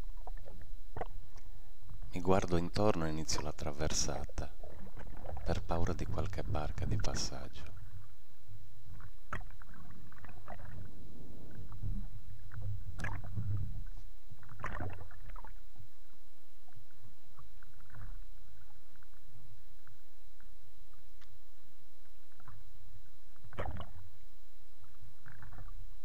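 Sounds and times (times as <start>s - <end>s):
steady low rumble: 0.0s - 20.4s.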